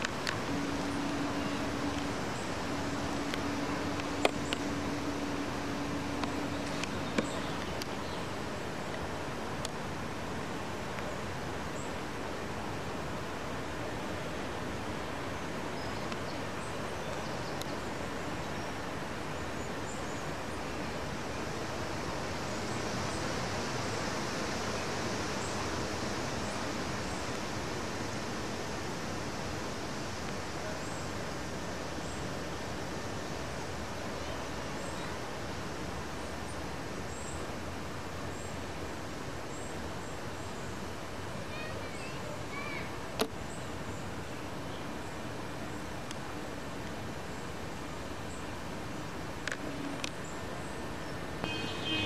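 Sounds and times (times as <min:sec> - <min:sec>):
outdoor ambience rushing noise: 0:00.0 - 0:52.0
faint high chirps: 0:51.0 - 0:52.0.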